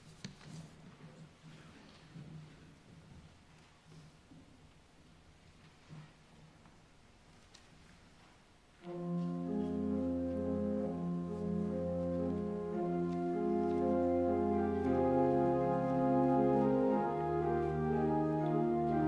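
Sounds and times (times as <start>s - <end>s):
church organ chords: 8.8s - 19.0s.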